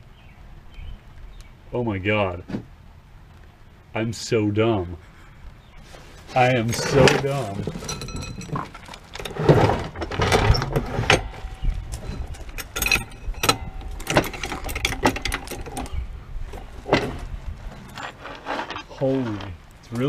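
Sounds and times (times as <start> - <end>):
low rumble: 5.0 - 20.0
metallic clinks of hand tools: 6.7 - 9.2, 12.0 - 15.9.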